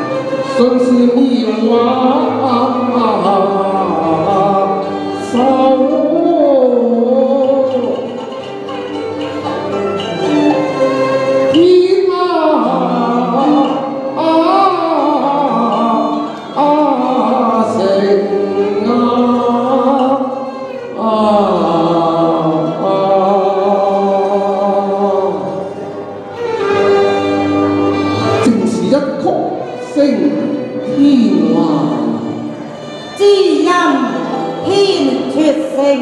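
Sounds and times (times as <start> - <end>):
recorded backing music: 0.0 - 36.0
man singing into microphone: 0.5 - 8.1, 11.5 - 20.4.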